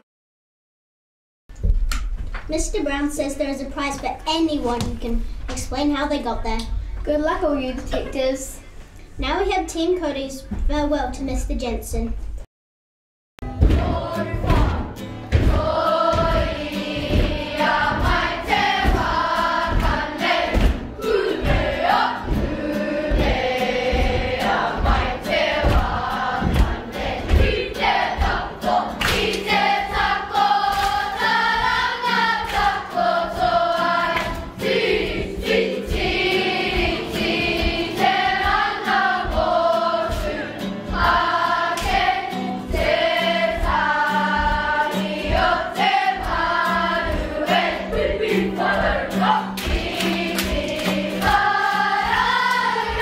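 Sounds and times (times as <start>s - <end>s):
steady beat: 13.4s - 53.0s
children singing together: 13.6s - 53.0s.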